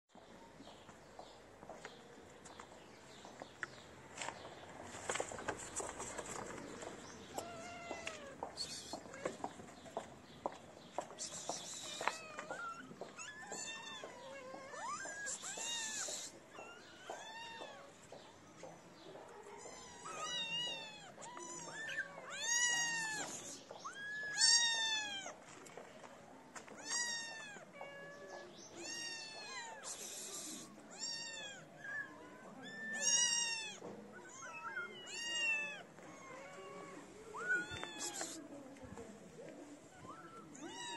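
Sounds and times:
kittens meowing: 7.2s - 9.5s, 11.3s - 18.0s, 19.6s - 25.3s, 26.8s - 38.4s, 39.9s - 40.9s.

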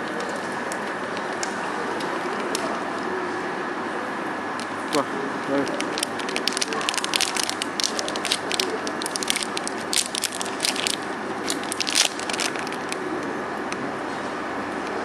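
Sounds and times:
steady background hum: 0.0s - 15.0s
foil sachet crinkling: 5.6s - 13.0s.

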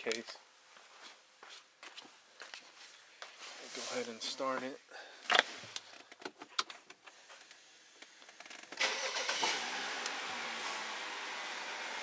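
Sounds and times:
car engine starting and idling: 8.3s - 12.0s.

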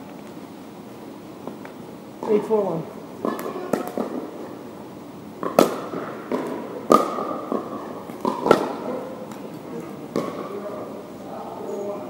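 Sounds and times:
paddles hitting pickleball: 3.2s - 4.6s, 5.4s - 10.8s.

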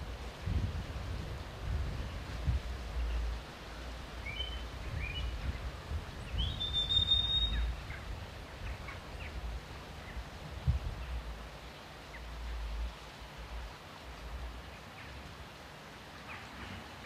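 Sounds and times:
wind buffeting microphone: 0.0s - 3.5s, 4.2s - 11.4s.

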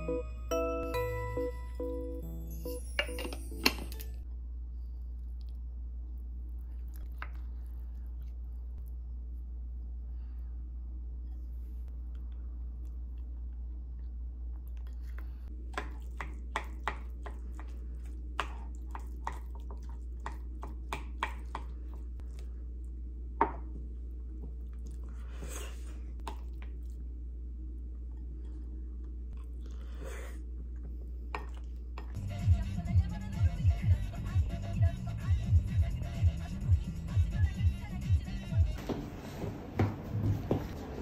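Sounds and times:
steady low hum: 4.2s - 41.0s
person chewing: 6.5s - 9.0s, 12.0s - 23.0s, 24.2s - 27.2s, 27.9s - 32.2s.

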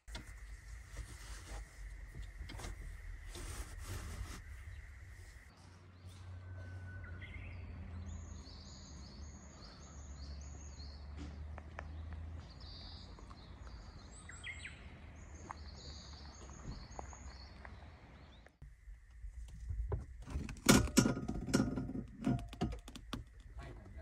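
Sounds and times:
low steady hum: 0.0s - 5.6s
birds chirping: 0.0s - 19.1s.

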